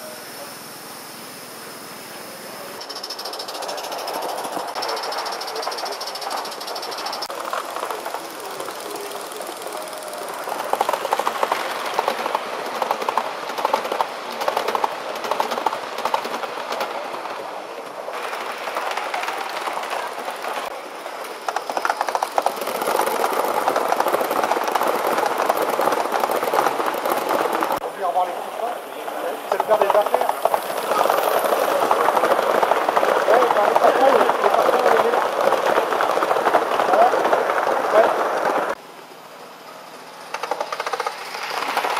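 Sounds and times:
model trains on metal track: 0:00.0 - 0:41.9
wheels clicking over rail joints: 0:02.7 - 0:38.8, 0:40.2 - 0:41.9.

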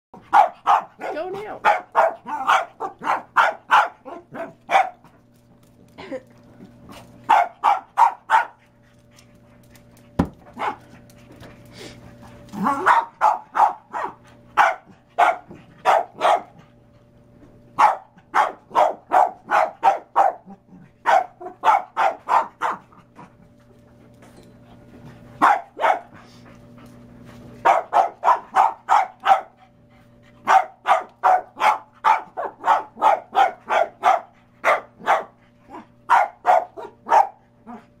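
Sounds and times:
small dog barking: 0:00.3 - 0:05.1, 0:07.3 - 0:08.6, 0:10.6 - 0:10.8, 0:12.6 - 0:16.6, 0:17.8 - 0:22.9, 0:25.4 - 0:26.1, 0:27.6 - 0:29.6, 0:30.4 - 0:37.8.

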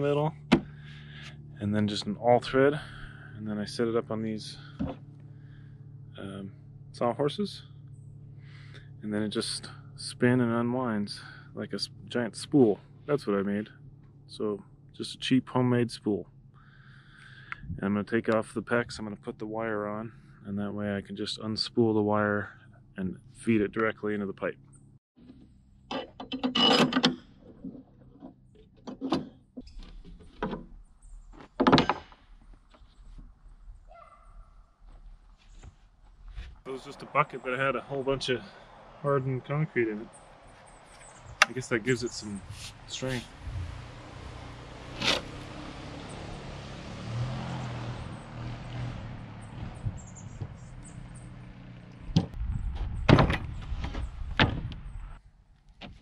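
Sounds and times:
wood and metal knocks and rattles: 0:25.9 - 0:32.9, 0:52.1 - 0:54.8.

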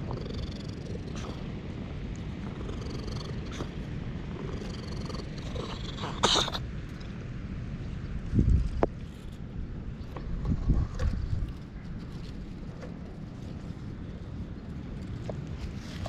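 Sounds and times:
cat purring: 0:00.0 - 0:06.6.

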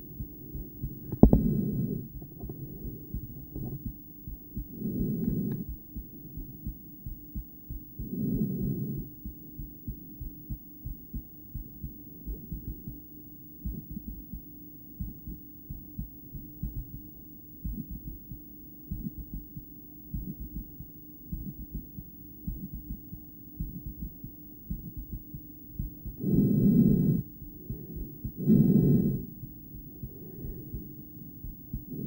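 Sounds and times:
heartbeat through stethoscope: 0:00.0 - 0:32.0
breaths over stethoscope: 0:26.2 - 0:31.1.

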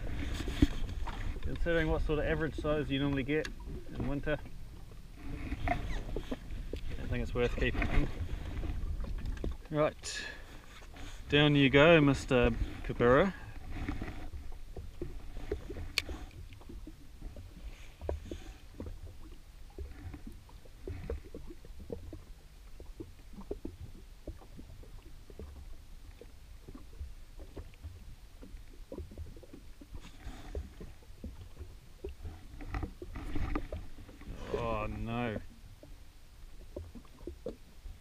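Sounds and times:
small waves slapping a hull: 0:00.0 - 0:38.0.

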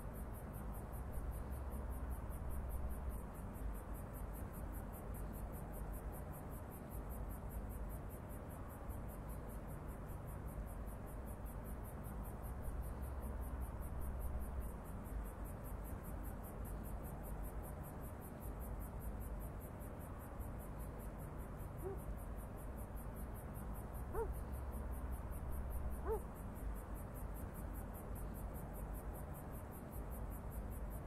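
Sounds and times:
insects chirping: 0:00.0 - 0:31.0
low steady rumble: 0:00.0 - 0:31.0.

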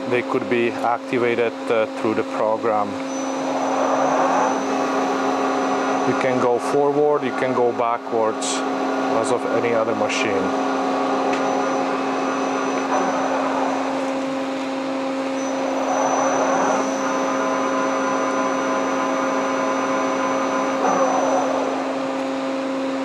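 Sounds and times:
lathe machine hum: 0:00.0 - 0:23.0
machine whine: 0:00.0 - 0:23.0.

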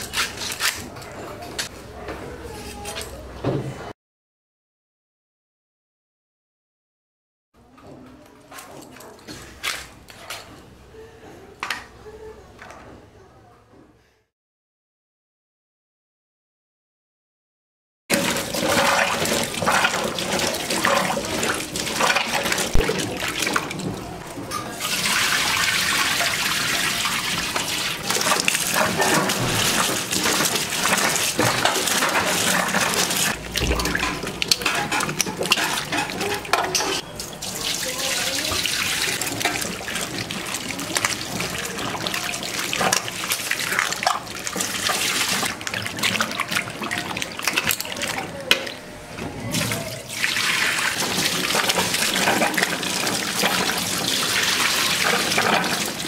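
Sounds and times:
handling knocks and clatters: 0:07.6 - 0:10.7
water running and splashing: 0:18.1 - 0:48.4, 0:49.6 - 0:56.0.

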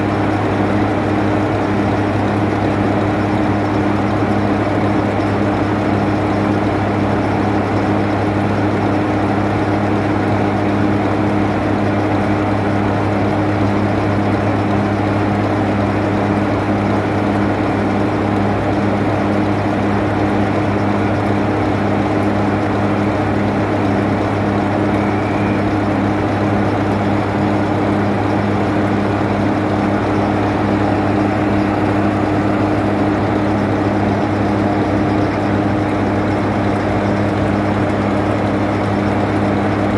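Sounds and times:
diesel locomotive engine idling: 0:20.7 - 0:39.9.

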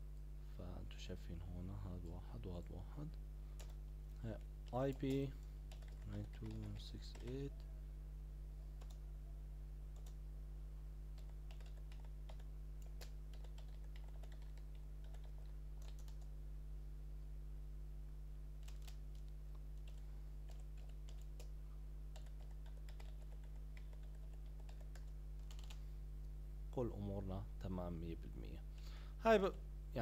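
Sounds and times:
steady low hum: 0:00.0 - 0:30.0
keyboard typing clicks: 0:03.6 - 0:03.8, 0:04.7 - 0:07.7, 0:08.8 - 0:09.0, 0:09.9 - 0:10.2, 0:11.2 - 0:16.3, 0:18.6 - 0:21.5, 0:22.1 - 0:25.8.

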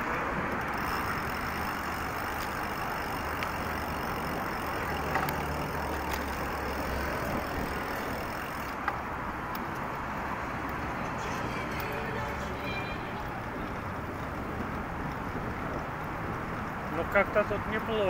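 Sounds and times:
road traffic: 0:00.0 - 0:18.0
vehicle engine hum: 0:00.0 - 0:18.0
faint clicks: 0:00.5 - 0:09.9.

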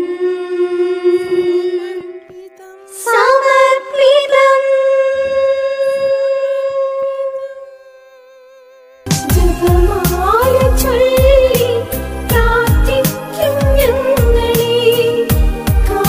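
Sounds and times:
woman singing unaccompanied: 0:00.0 - 0:16.0
song with bass and beat: 0:09.1 - 0:16.0.

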